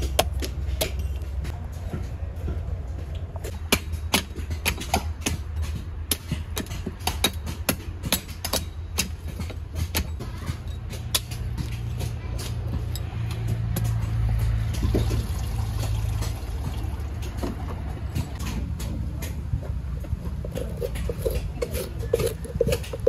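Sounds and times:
knife chopping coconut shell: 20.0 - 23.0.

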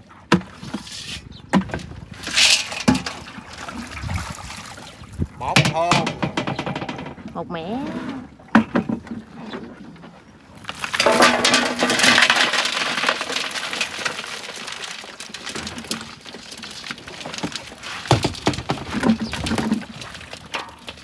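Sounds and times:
fish flapping and splashing: 10.6 - 21.0.

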